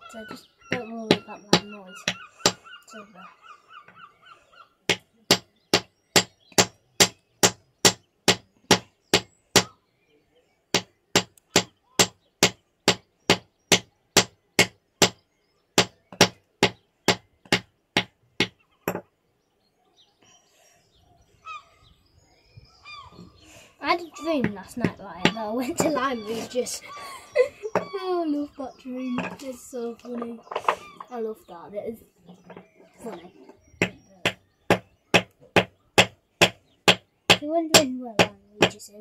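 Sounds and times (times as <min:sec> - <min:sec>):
hammer knocking on stone: 0:04.9 - 0:09.7, 0:10.8 - 0:15.2, 0:15.8 - 0:19.0, 0:33.8 - 0:38.8.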